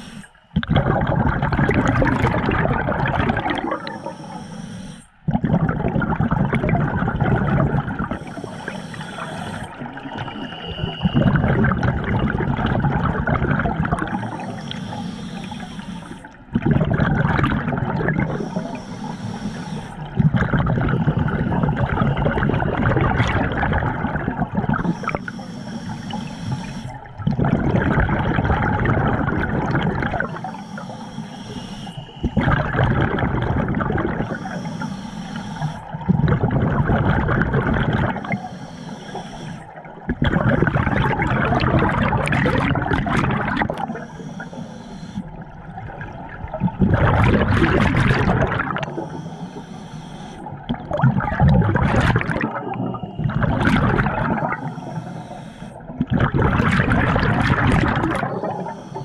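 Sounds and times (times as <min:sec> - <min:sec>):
regulator hissing inhale: 0:00.0 - 0:00.5, 0:03.6 - 0:05.3, 0:08.0 - 0:12.1, 0:13.8 - 0:16.5, 0:18.2 - 0:27.2, 0:30.2 - 0:36.3, 0:37.0 - 0:45.8, 0:47.3 - 0:50.7, 0:52.2 - 0:56.0, 0:58.2 - 0:59.0
exhaled bubbles rushing: 0:00.5 - 0:04.2, 0:05.2 - 0:30.9, 0:31.5 - 0:34.6, 0:35.6 - 0:38.4, 0:39.1 - 0:44.6, 0:45.2 - 0:49.4, 0:50.4 - 0:55.1, 0:55.7 - 0:59.0.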